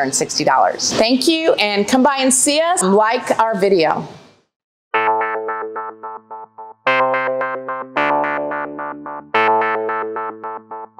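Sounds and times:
quick repeated music chords: 5.0 - 10.9.

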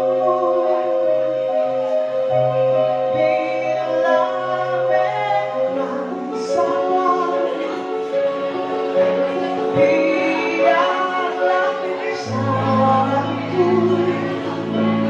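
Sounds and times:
keyboard: 0.0 - 15.0
woman singing into a microphone: 0.0 - 15.0
bass guitar: 12.3 - 15.0.

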